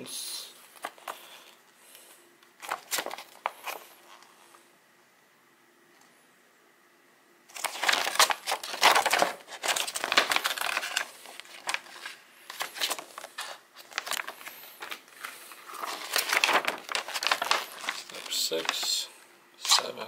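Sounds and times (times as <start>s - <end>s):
paper rustling and crinkling: 0.7s - 1.2s, 2.6s - 4.3s, 7.5s - 20.0s.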